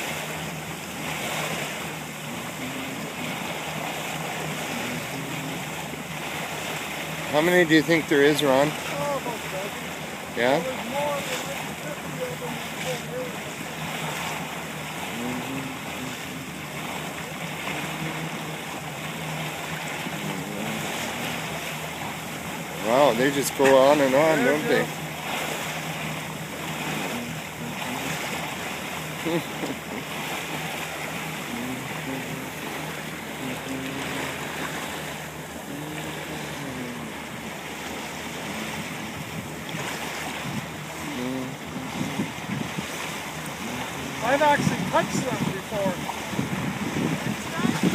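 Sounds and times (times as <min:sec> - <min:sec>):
water rushing past boat hull: 0:00.0 - 0:47.9
wind: 0:00.0 - 0:47.9
wind buffeting microphone: 0:31.4 - 0:47.9.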